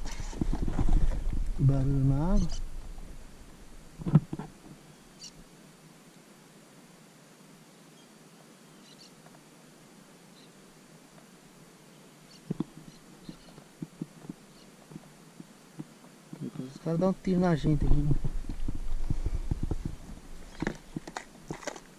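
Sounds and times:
faint high bird chirps: 4.9s - 5.4s, 8.0s - 9.2s, 12.3s - 13.6s
soft dull knocks: 18.1s - 21.1s.

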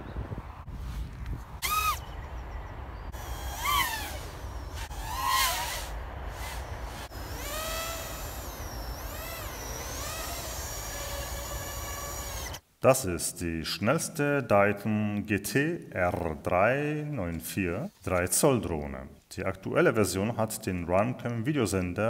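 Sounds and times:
drone motors whining: 1.6s - 2.1s, 3.0s - 12.6s.

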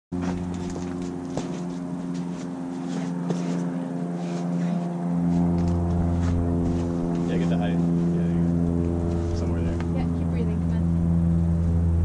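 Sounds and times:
low mechanical hum: 0.2s - 12.0s.

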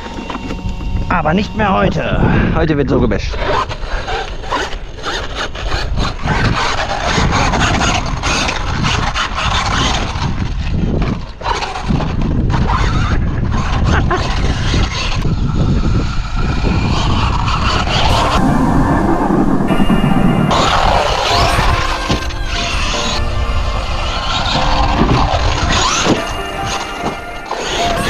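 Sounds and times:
rc truck electric drive noise: 0.0s - 2.2s.

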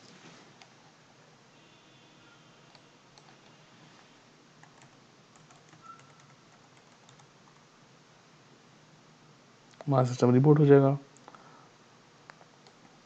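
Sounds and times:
computer keyboard clicks: 4.6s - 7.3s.

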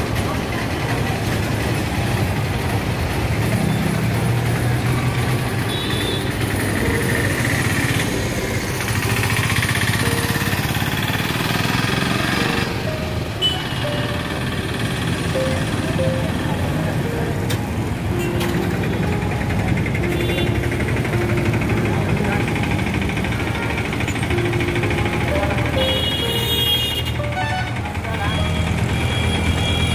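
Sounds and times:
motorcycles and cars passing: 0.0s - 29.9s
low engine drone: 6.3s - 28.4s.

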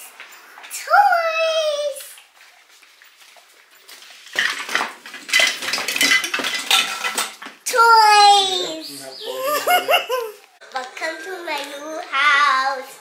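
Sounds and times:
objects clattering in cardboard box: 4.0s - 7.6s.

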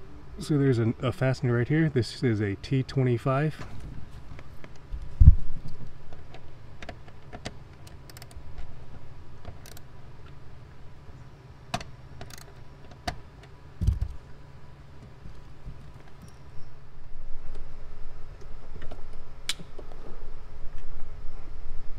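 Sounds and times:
hand screwdriver clicking: 7.8s - 8.4s, 12.2s - 12.6s.

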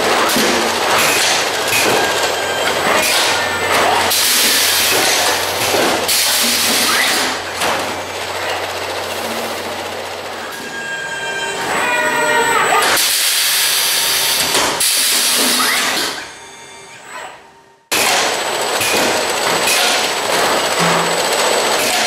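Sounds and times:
packing machine clattering: 0.0s - 10.4s, 18.0s - 22.0s
machine hum: 0.0s - 22.0s
short machine squeals: 10.4s - 17.8s.

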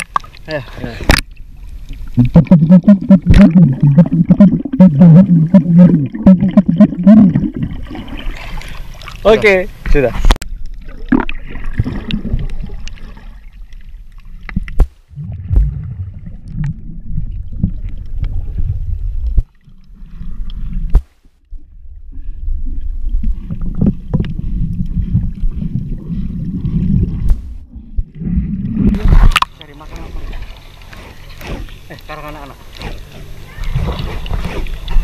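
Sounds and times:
underwater rumble of moving water: 0.0s - 35.0s.

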